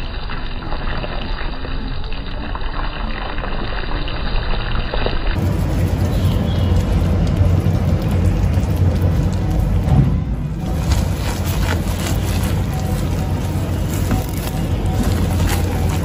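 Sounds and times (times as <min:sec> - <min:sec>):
caramel sizzling and bubbling: 0:00.0 - 0:16.0
heavy low rumble: 0:05.4 - 0:16.0.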